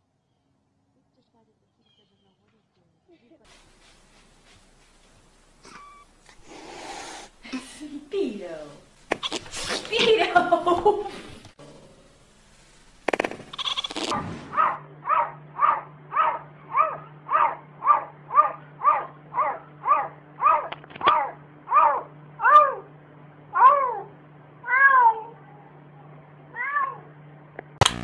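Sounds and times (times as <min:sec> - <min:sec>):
cat meowing: 0:05.7 - 0:06.0, 0:23.6 - 0:25.4.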